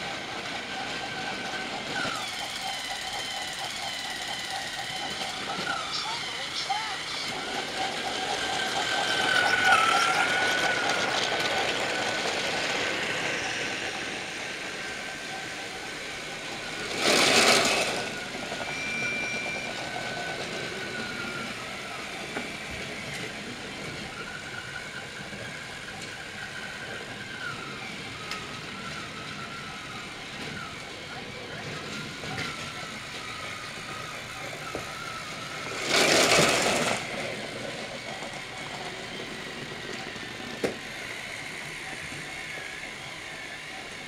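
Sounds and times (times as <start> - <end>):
toy train motor whining: 0.0 - 44.0.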